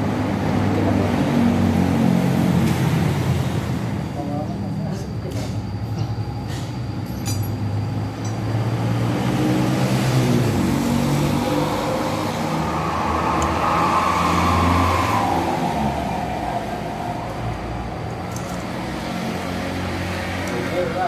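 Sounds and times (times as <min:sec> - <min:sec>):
engine revving: 0:08.3 - 0:21.0.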